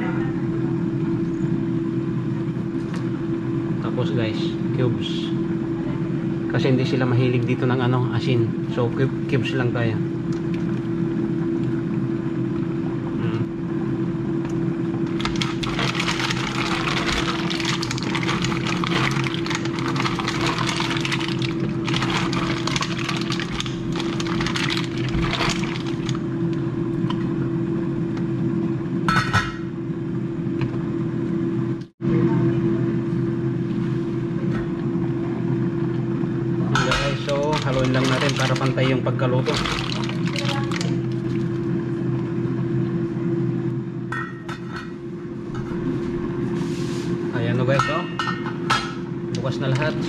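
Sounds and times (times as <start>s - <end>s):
steady hum: 0.0s - 50.0s
pot of mussels crackling: 15.1s - 26.3s, 37.2s - 41.6s.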